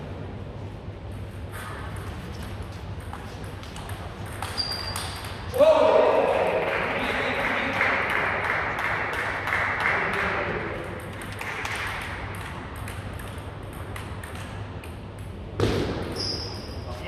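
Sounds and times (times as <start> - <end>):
sports hall noise: 0.0 - 17.0
table tennis ball bouncing: 1.1 - 5.6, 8.5 - 16.2.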